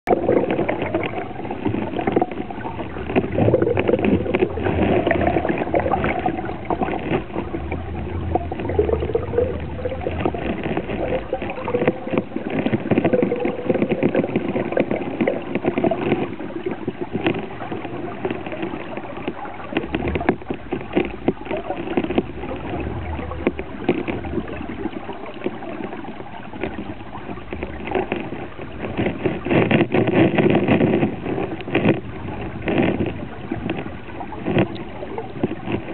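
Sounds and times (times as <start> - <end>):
underwater clicks and knocks: 0.0 - 35.9
underwater water rushing: 0.0 - 35.9
low wavering hum: 0.1 - 13.8, 19.4 - 30.0.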